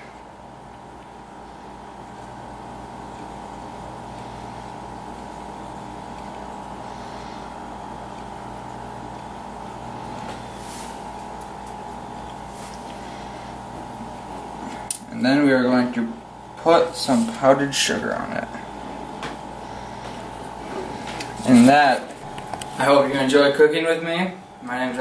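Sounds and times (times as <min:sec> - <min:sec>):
steady hum with high tone: 0:00.0 - 0:25.0.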